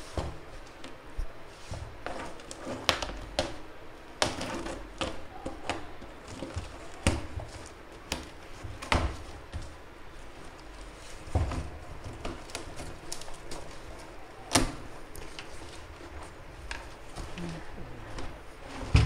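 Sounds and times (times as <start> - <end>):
cardboard rustling and scraping: 0.0 - 19.0
knocks and taps on cardboard: 4.2 - 9.8.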